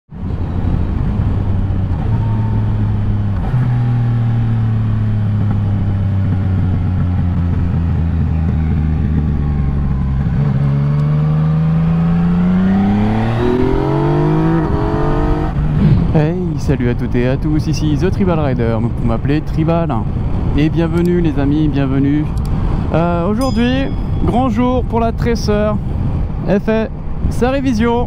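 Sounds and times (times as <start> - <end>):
motorcycle engine running: 0.7 - 16.1.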